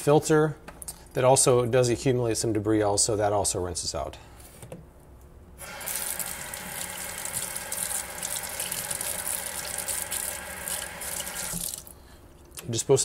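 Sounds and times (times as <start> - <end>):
faucet running into steel sink: 5.6 - 11.9.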